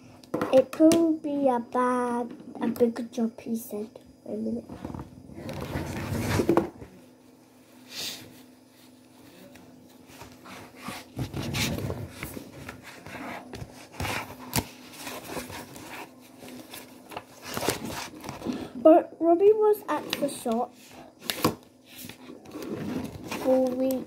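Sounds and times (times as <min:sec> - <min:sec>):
book pages turning: 0:09.4 - 0:18.7, 0:19.9 - 0:24.0.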